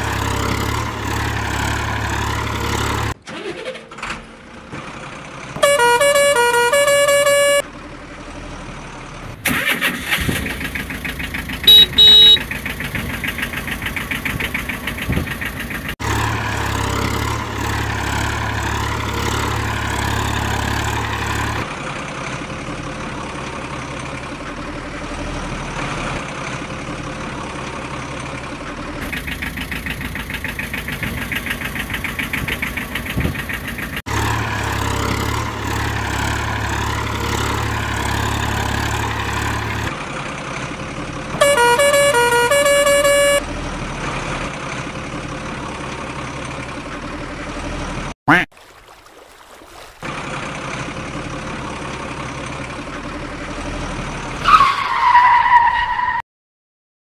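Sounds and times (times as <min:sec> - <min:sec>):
truck engine idling: 0:04.2 - 0:25.0, 0:26.6 - 0:43.5
truck horn honking: 0:05.6 - 0:07.7, 0:11.6 - 0:12.6, 0:41.4 - 0:43.5.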